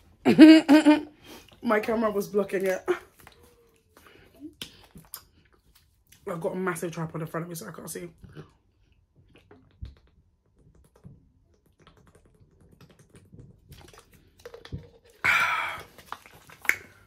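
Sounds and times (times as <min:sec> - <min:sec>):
person gulping water: 0:02.8 - 0:05.7, 0:08.2 - 0:17.0.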